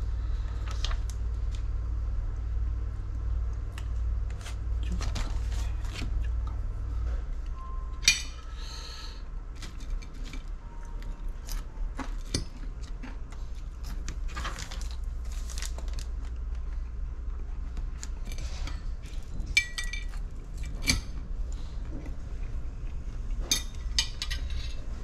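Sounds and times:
steady low hum: 0.0 - 25.0
paper packet rustling: 14.0 - 16.4.

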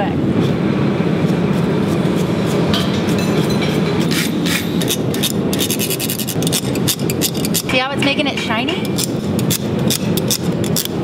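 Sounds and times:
brass bar rubbing on steel: 1.8 - 7.9
wire brush scrubbing steel: 1.8 - 11.0.

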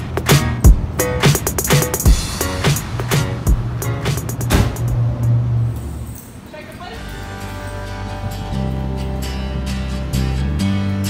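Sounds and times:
steady drum beat: 0.0 - 5.3
sustained bass line: 7.2 - 11.0.

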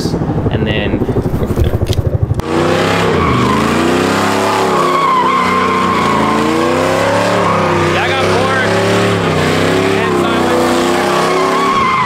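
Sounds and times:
truck engine revving: 0.3 - 12.0
tires squealing: 2.4 - 12.0.

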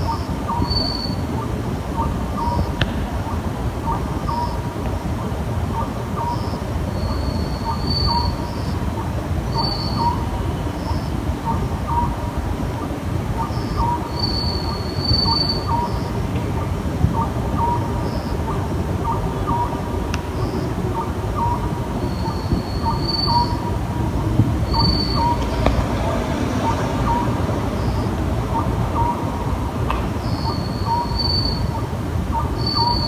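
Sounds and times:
owl hooting: 5.8 - 12.2, 13.4 - 16.1, 17.1 - 25.5, 30.2 - 33.0.

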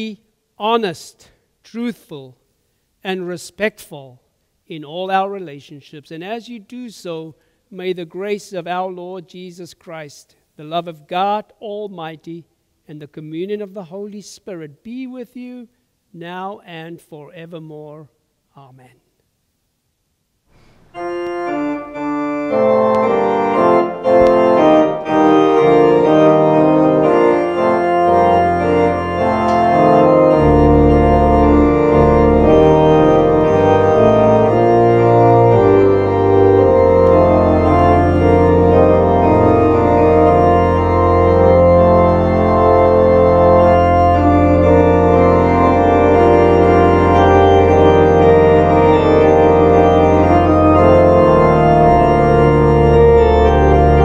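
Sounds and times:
church organ playing full chords: 20.6 - 54.0
deep organ pedal bass notes: 20.9 - 54.0.

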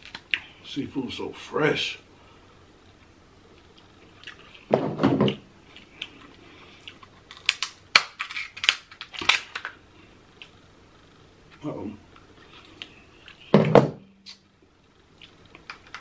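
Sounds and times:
scissors cracking crab shell: 7.3 - 9.6.

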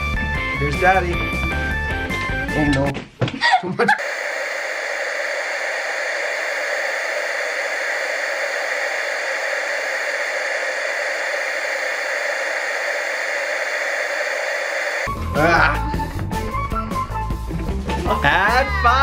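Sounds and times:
television static hiss: 4.0 - 15.1.

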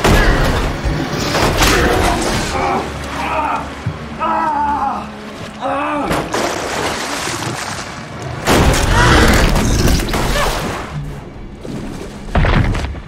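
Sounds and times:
water splashing: 5.0 - 8.7.

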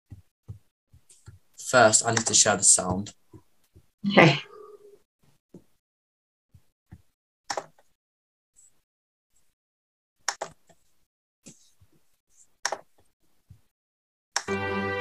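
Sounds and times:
computer mouse clicks: 2.1 - 2.4, 6.9 - 7.9, 10.3 - 10.8, 12.6 - 13.1.

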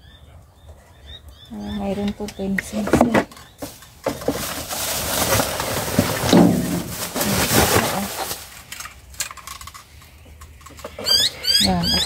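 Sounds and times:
plastic bags rustling: 3.5 - 9.9.

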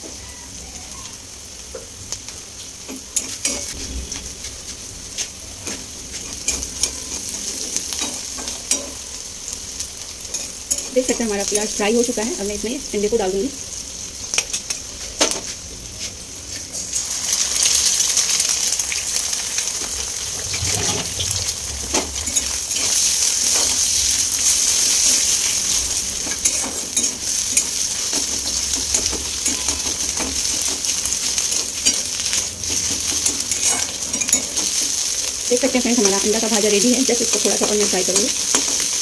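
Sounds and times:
egg sizzling in hot oil: 0.0 - 39.0
spatula scraping and tapping pan: 26.2 - 35.0.

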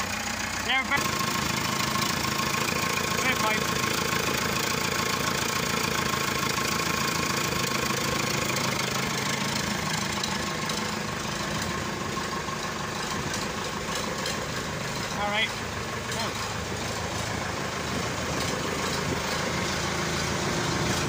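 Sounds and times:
tractor diesel engine running: 0.0 - 21.0.

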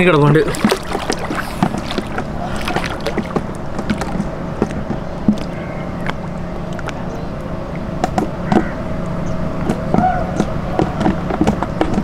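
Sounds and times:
water splashing and dripping: 0.0 - 7.0
low hum: 0.0 - 12.0.

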